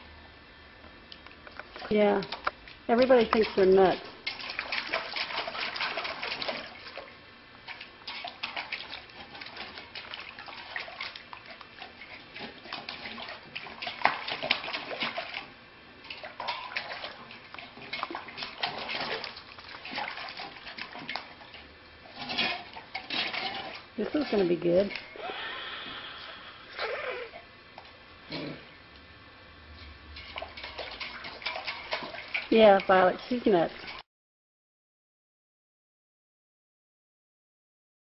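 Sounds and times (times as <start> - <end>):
puppy splashing in water bowl: 1.6 - 25.2, 29.7 - 34.0.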